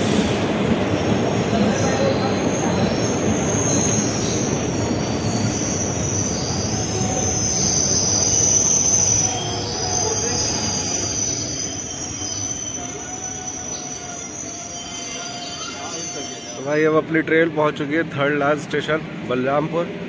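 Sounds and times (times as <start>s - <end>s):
wheel and brake squeal: 1.0s - 16.9s.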